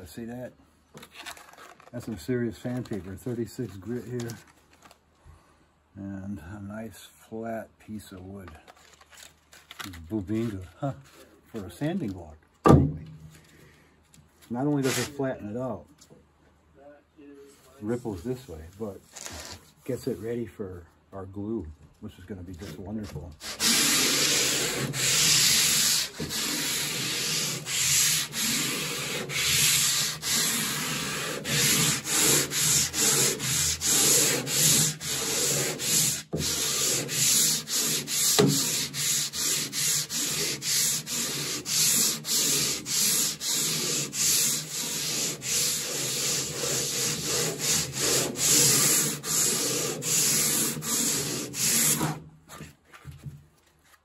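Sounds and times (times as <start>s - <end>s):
sandpaper rasping on wood: 14.8s - 15.2s, 23.4s - 52.2s.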